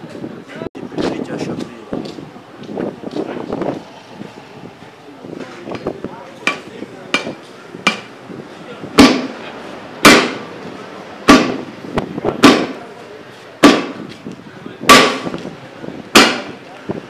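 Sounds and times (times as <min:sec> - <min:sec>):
hammer striking metal: 0:06.4 - 0:08.1, 0:09.0 - 0:09.4, 0:10.0 - 0:10.5, 0:11.2 - 0:11.7, 0:12.4 - 0:12.8, 0:13.6 - 0:14.0, 0:14.9 - 0:15.4, 0:16.2 - 0:16.6.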